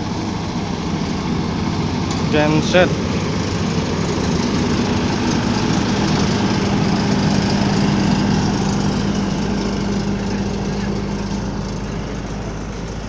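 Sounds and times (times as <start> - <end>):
diesel generators running: 0.0 - 13.0.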